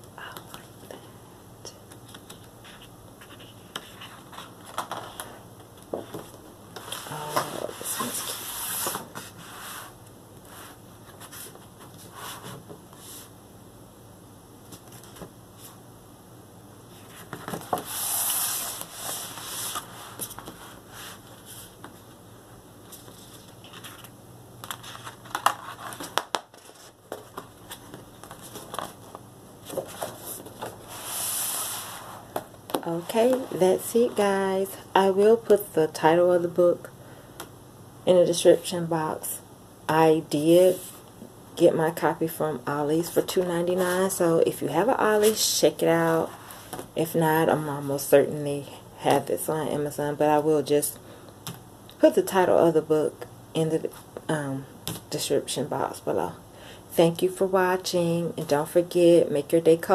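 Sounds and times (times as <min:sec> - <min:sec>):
heavy paper rustling and sliding: 0:17.0 - 0:21.7, 0:29.7 - 0:32.4.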